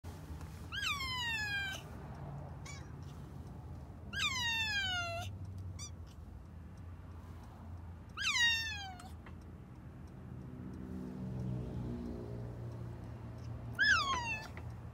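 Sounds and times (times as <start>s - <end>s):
kitten meowing: 0.7s - 1.8s, 2.6s - 2.9s, 4.1s - 6.0s, 8.2s - 9.1s, 13.8s - 14.6s.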